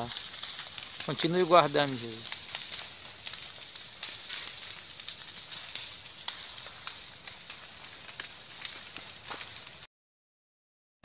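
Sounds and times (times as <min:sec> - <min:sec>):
fire crackling and popping: 0:00.0 - 0:09.9
fire hissing: 0:00.0 - 0:09.9.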